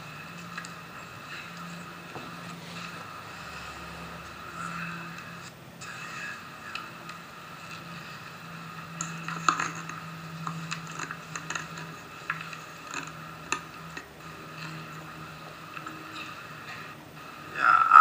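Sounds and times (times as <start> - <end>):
steady low hum: 0.0 - 18.0
small clicks and taps: 8.9 - 14.8.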